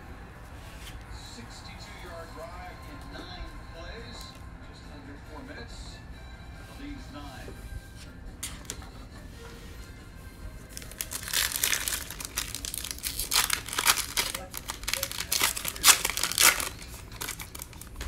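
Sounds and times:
plastic wrapper crinkling: 10.7 - 18.0.

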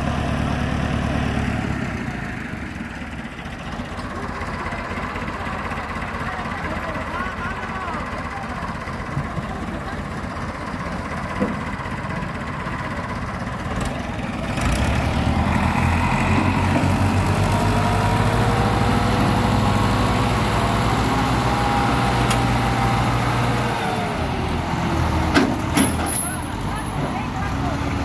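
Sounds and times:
tractor diesel engine revving hard: 0.0 - 3.6, 13.6 - 28.0.

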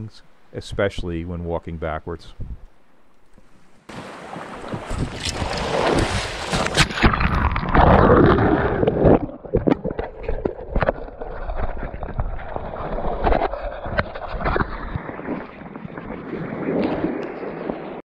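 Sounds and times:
wind on microphone: 2.3 - 2.7, 4.6 - 18.0
water rushing: 3.9 - 18.0.

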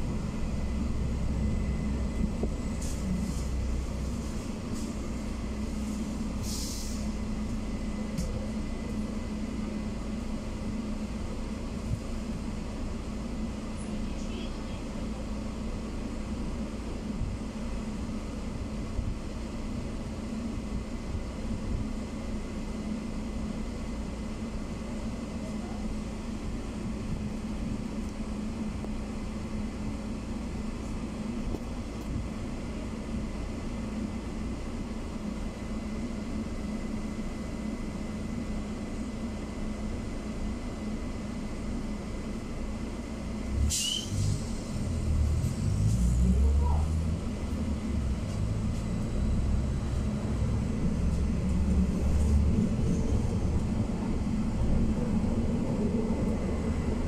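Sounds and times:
trolleybus interior rumble: 0.0 - 57.0
high electrical whistle: 43.7 - 44.2.

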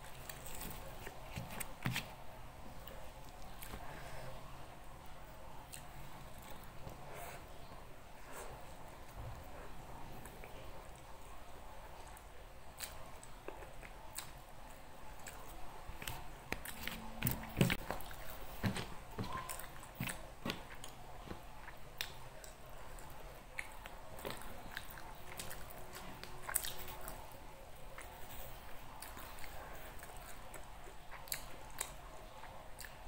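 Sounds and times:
person chewing and biting food: 12.8 - 33.0.

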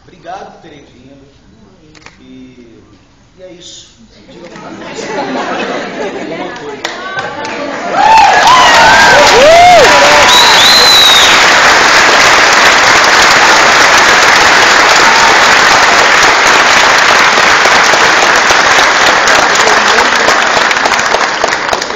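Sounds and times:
audience applauding: 6.8 - 21.9.

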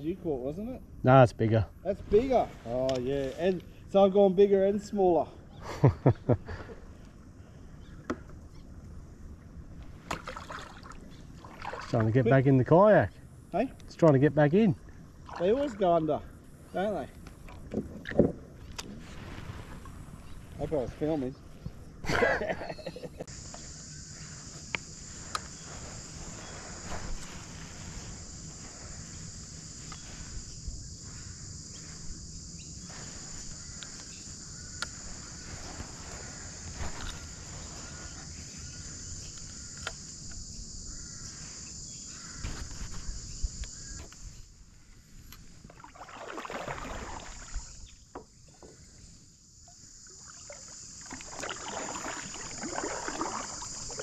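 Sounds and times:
paddle swishing through water: 9.8 - 12.1, 15.2 - 15.9, 17.4 - 20.6, 45.6 - 48.8, 50.2 - 54.0
high-pitched insect drone: 19.6 - 54.0.

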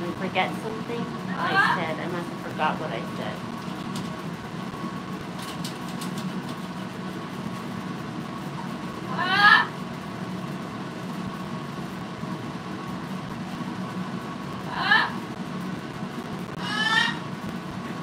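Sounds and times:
steady low hum: 0.0 - 18.0
parrot call: 9.1 - 9.7, 16.6 - 17.3.

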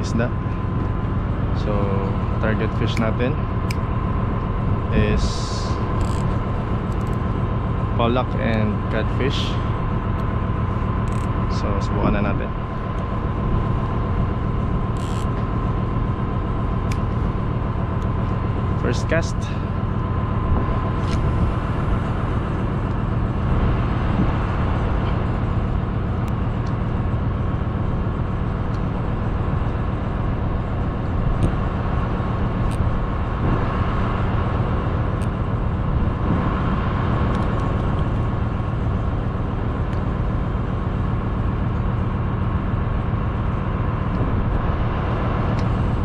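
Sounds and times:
ship engine drone: 0.0 - 46.0
wind noise: 20.3 - 26.6, 30.4 - 39.2.

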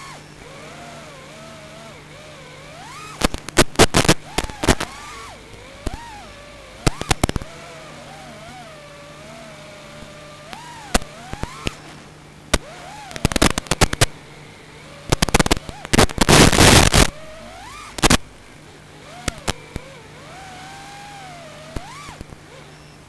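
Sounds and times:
drone motors whining: 0.0 - 23.0
sharp crackles: 2.7 - 6.2, 6.8 - 7.6, 10.0 - 14.2, 15.1 - 18.5, 19.1 - 19.9
loud hiss-like noise burst: 2.8 - 23.0.

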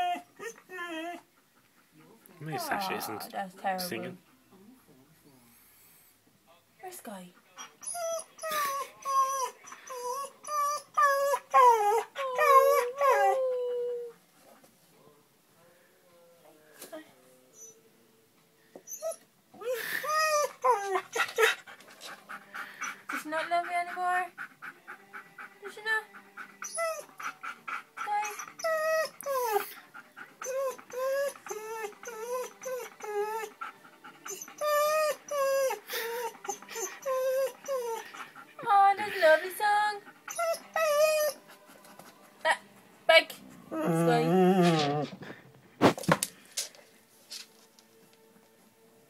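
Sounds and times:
dog whining and howling: 0.0 - 1.2, 7.8 - 14.2, 26.6 - 29.7, 30.4 - 38.2, 40.2 - 41.4, 43.7 - 45.2.

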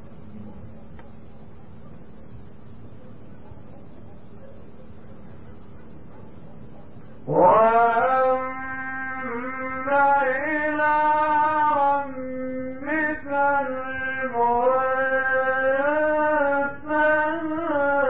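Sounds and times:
man chanting melodically: 7.2 - 18.0.

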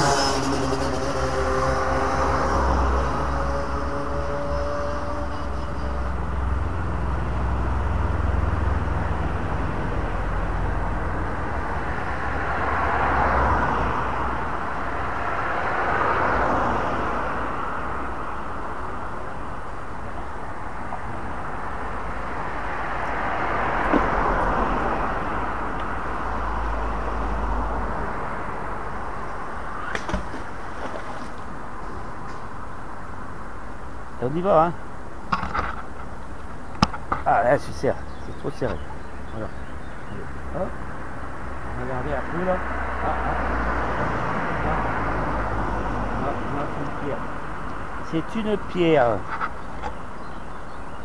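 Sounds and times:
low traffic rumble: 0.0 - 51.0
vehicles passing: 0.0 - 51.0.

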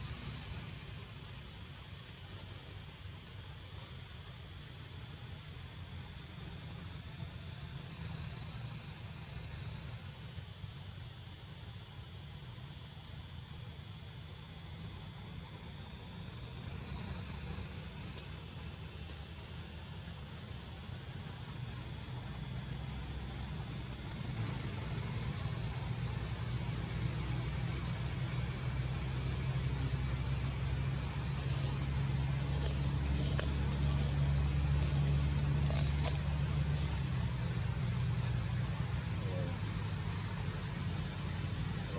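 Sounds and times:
insects buzzing: 0.0 - 41.9
low steady rumble: 14.7 - 41.9.

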